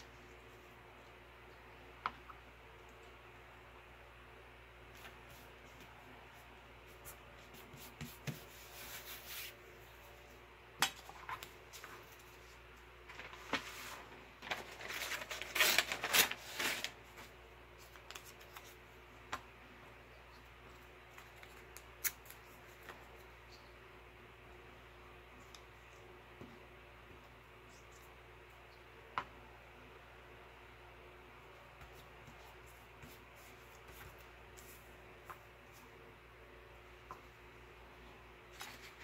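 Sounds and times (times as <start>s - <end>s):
paper rustling: 11.1s - 18.8s.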